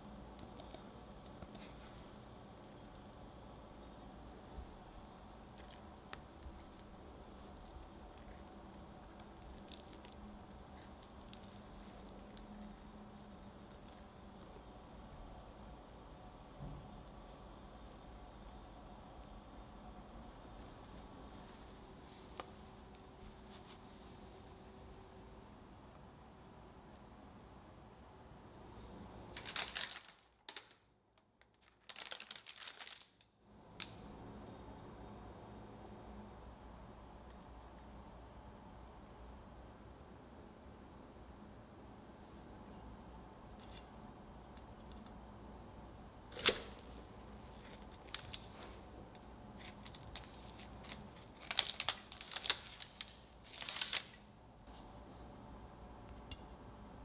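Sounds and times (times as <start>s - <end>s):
parchment paper crackling: 4.8s - 18.7s, 29.3s - 34.0s, 46.3s - 54.2s.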